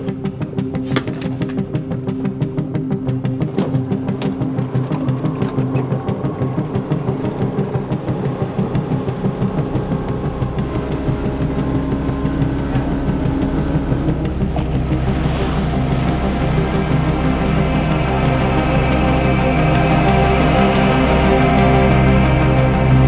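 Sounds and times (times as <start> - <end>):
boat motor droning: 0.0 - 23.0.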